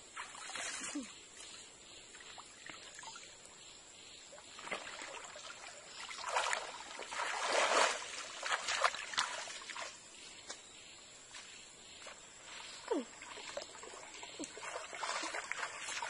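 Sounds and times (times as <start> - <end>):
water splashing: 4.4 - 10.0, 12.0 - 16.0.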